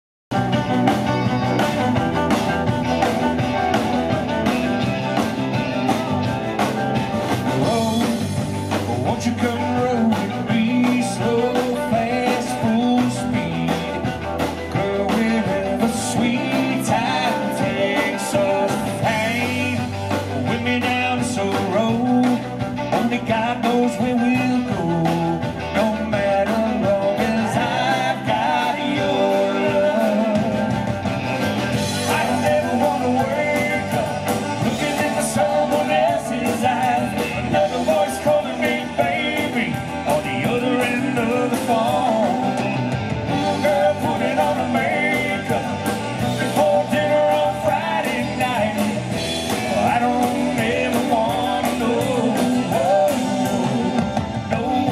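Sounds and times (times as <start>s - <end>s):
fiddle: 0.3s - 21.2s
drums: 0.3s - 54.9s
electric and acoustic guitars: 0.3s - 54.9s
keyboard: 0.3s - 54.9s
lead singing: 2.9s - 54.9s.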